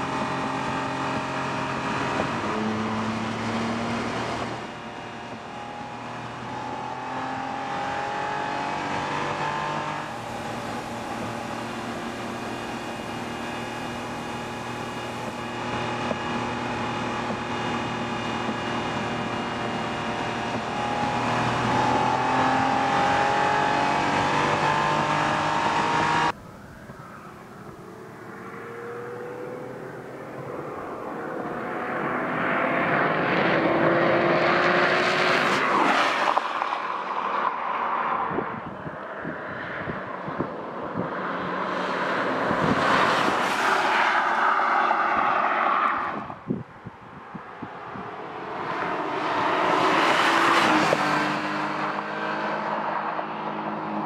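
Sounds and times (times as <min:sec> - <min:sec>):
car engine revving: 0:00.0 - 0:37.2, 0:47.7 - 0:54.0
car driving past: 0:24.6 - 0:40.4.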